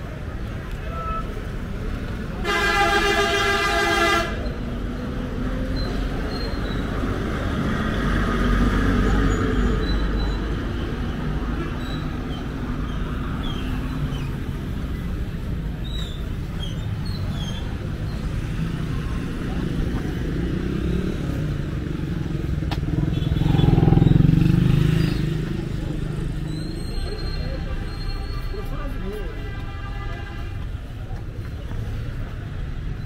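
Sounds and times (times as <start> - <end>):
bus engine rumble: 0.0 - 24.2
street traffic: 0.0 - 33.0
vehicle horn: 2.4 - 4.5, 29.4 - 30.8.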